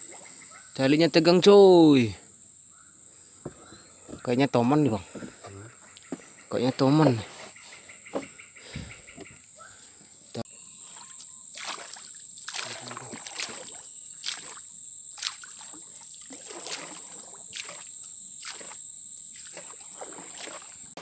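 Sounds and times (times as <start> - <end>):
paddle strokes swishing through water: 10.9 - 14.6, 15.2 - 18.8, 19.4 - 21.0.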